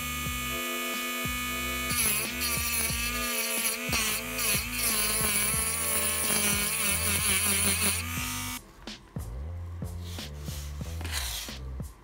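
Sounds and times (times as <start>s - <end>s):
rotary tool grinding metal: 0.0s - 8.6s.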